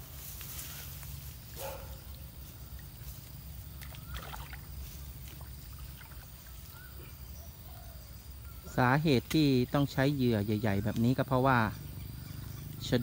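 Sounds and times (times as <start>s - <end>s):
small water splashes: 2.2s - 7.1s.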